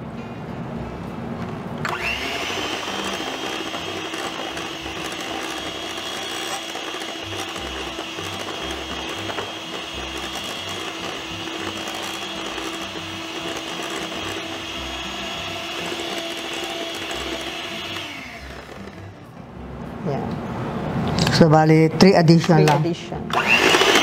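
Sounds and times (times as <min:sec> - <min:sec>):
electric hand mixer whine: 0:01.8 - 0:19.3, 0:23.3 - 0:24.0.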